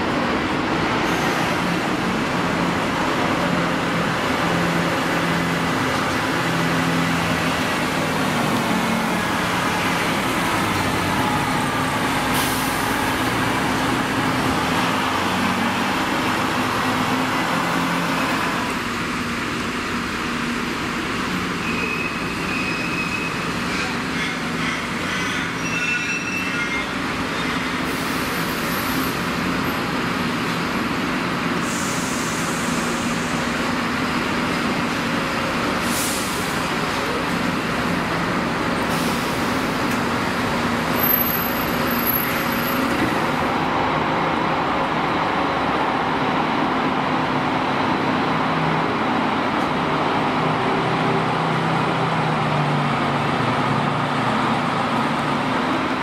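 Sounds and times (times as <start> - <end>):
bus engines running: 0.0 - 56.0
air hissing: 31.6 - 33.6.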